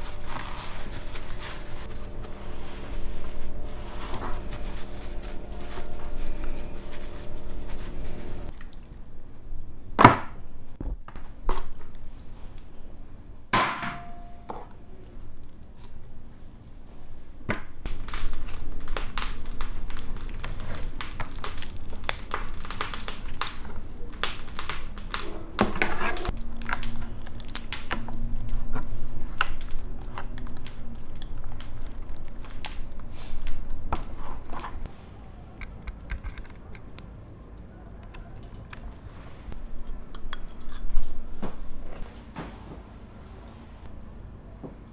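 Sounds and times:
plastic bag crinkling: 0:17.9 - 0:34.8.

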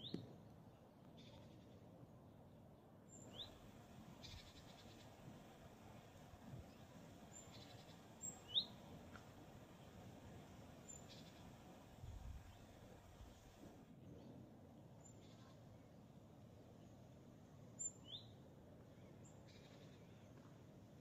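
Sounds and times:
bird chirps: 0:03.1 - 0:03.6, 0:04.2 - 0:05.1, 0:07.3 - 0:08.8.

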